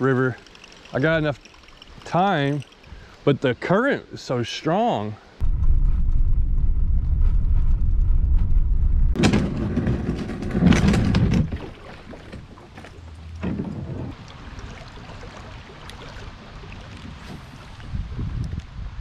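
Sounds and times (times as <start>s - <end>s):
water moving around kayak: 0.0s - 3.3s, 10.8s - 18.7s
wind: 0.0s - 19.0s.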